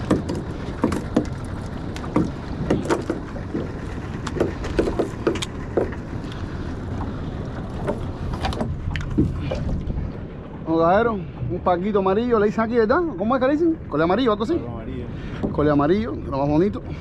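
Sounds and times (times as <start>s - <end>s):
slaps and knocks on boat hull: 0.0s - 1.4s, 2.0s - 6.0s
low rumble of wind and water: 0.0s - 17.0s.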